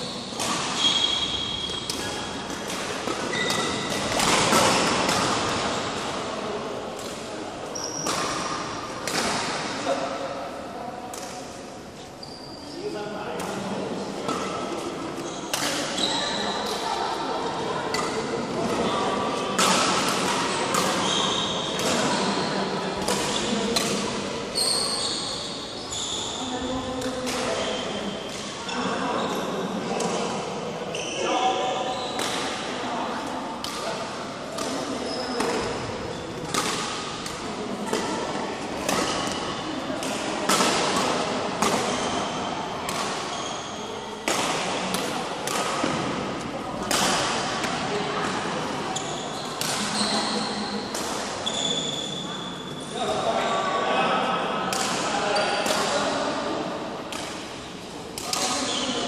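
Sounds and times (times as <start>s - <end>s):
shoes squeaking on floor: 0.0s - 2.3s, 3.3s - 3.9s, 7.8s - 8.5s, 12.2s - 12.9s, 15.2s - 16.6s, 21.0s - 22.6s, 24.6s - 26.6s, 30.9s - 32.2s, 35.0s - 35.4s, 43.3s - 44.0s, 48.9s - 50.8s, 51.4s - 53.7s
racket hitting shuttlecock: 0.3s - 0.8s, 1.6s - 6.3s, 8.0s - 9.8s, 13.4s - 16.0s, 17.9s - 25.0s, 27.0s - 28.6s, 32.2s - 32.7s, 33.6s - 43.4s, 44.2s - 50.1s, 50.8s - 51.9s, 54.7s - 56.5s, 57.1s - 57.5s, 58.2s - 58.8s
sneakers squeaking on court: 3.3s - 5.2s, 7.8s - 8.6s, 15.2s - 16.6s, 20.8s - 24.0s, 24.6s - 26.7s, 41.8s - 44.0s, 48.9s - 50.8s, 51.4s - 52.7s.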